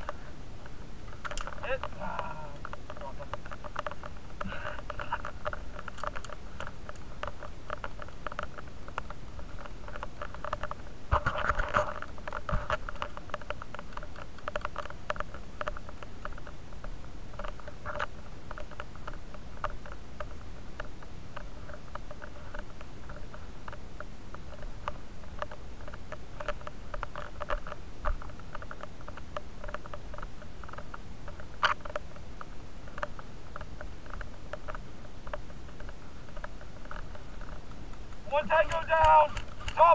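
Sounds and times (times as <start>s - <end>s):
camera rubbing rustling: 1.0s - 16.6s, 17.3s - 39.9s
sharp clicks: 17.4s - 39.9s.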